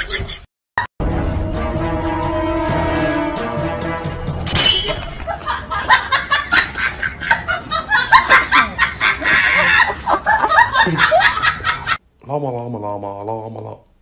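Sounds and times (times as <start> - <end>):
person cackling laughter: 5.3 - 12.0.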